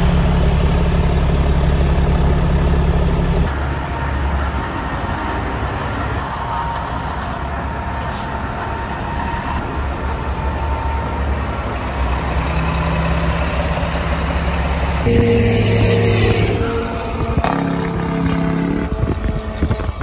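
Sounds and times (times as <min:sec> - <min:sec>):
diesel truck engine idling: 0:00.0 - 0:04.0.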